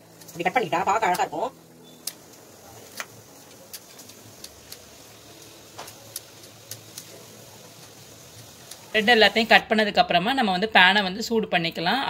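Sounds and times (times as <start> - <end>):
scissors snipping toasted bread: 2.0 - 9.0.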